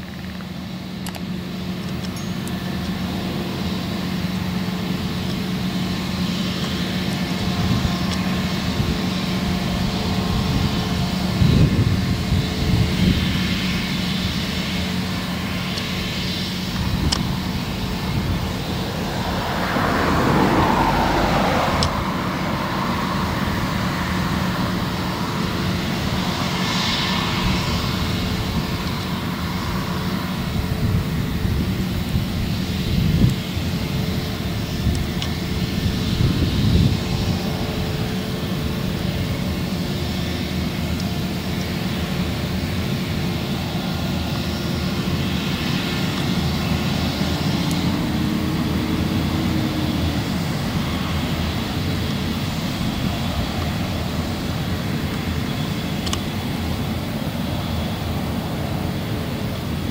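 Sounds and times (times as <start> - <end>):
combine harvester drone: 0.0 - 59.9
tractor running: 0.0 - 59.9.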